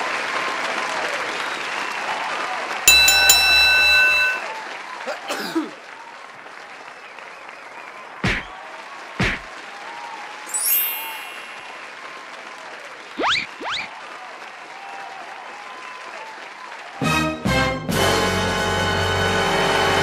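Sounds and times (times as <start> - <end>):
crowd cheering and applauding: 0.0 - 20.0
loud bell ring: 2.9 - 4.8, 10.5 - 12.0.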